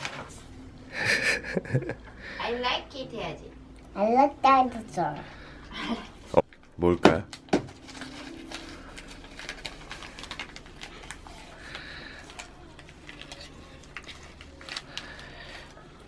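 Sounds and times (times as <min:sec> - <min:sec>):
wrapping paper crinkling and tearing: 0:07.3 - 0:16.0.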